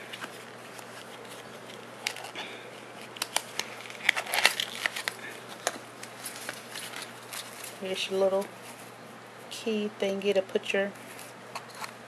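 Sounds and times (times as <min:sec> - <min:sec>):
paper and plastic crinkling: 0:00.0 - 0:08.9.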